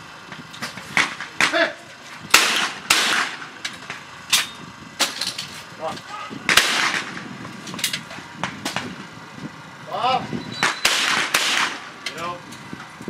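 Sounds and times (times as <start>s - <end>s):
shotgun shots: 2.3s - 3.5s, 6.5s - 7.3s, 10.6s - 12.0s.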